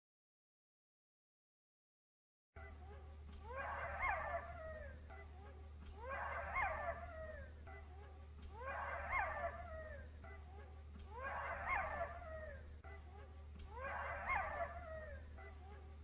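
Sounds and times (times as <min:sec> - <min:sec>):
dog whining: 0:03.4 - 0:05.2.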